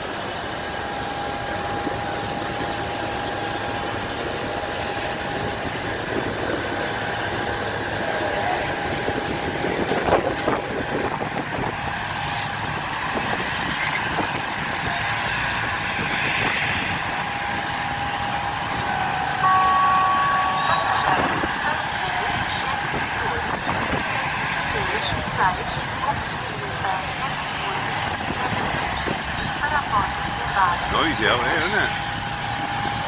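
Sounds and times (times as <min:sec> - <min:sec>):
diesel vehicle engine: 0:00.0 - 0:33.0
steady high tone: 0:18.6 - 0:23.4
electronic warning beep: 0:19.4 - 0:21.8.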